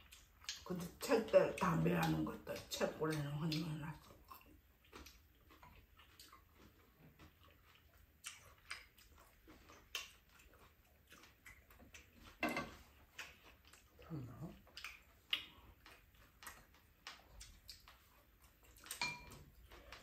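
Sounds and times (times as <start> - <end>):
spoons clicking against bowls: 18.9 - 19.4.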